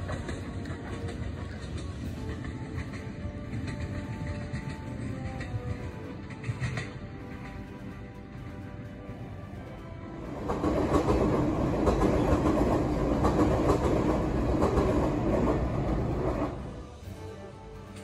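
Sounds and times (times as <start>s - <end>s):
wheel clacks over rail joints: 0.0s - 9.5s
electric train passing: 0.0s - 18.0s.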